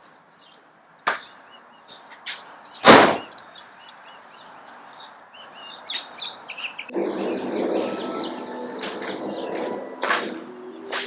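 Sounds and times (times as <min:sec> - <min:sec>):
birds chirping: 0:00.0 - 0:11.0
loud short thud: 0:02.8 - 0:03.3.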